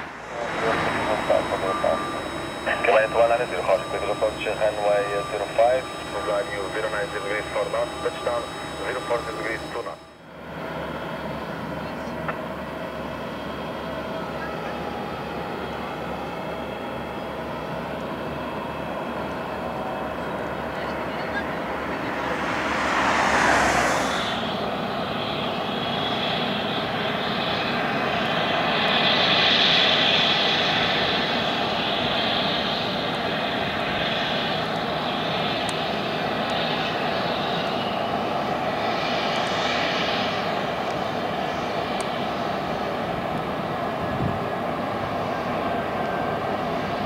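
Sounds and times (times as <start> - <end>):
jet engines rumbling and whining: 0.0 - 47.0
brief rushing noise: 21.5 - 25.0.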